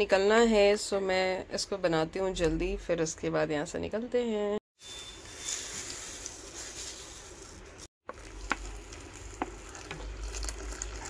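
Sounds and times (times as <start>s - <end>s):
food sizzling on stove: 8.1s - 11.0s.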